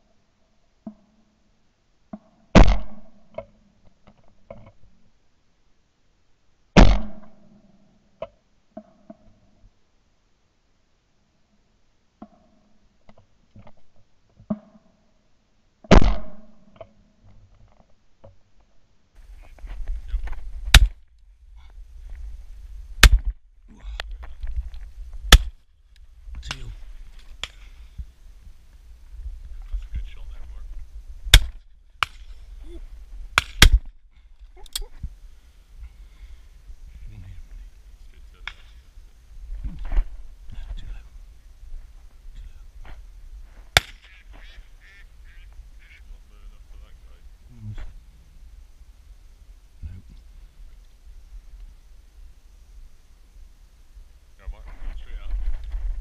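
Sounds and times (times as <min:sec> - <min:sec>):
shotgun shots: 0:02.6 - 0:03.2, 0:06.8 - 0:07.4, 0:15.9 - 0:16.6, 0:20.7 - 0:21.0, 0:23.0 - 0:23.3, 0:25.3 - 0:25.6, 0:31.3 - 0:32.4, 0:33.4 - 0:33.9, 0:43.8 - 0:44.5
wind rumble on microphone: 0:19.2 - 0:31.4, 0:47.1 - 0:56.0.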